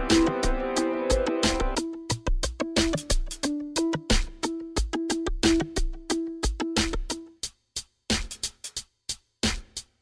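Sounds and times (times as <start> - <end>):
held chords: 0.0 - 7.4
steady beat: 0.0 - 10.0.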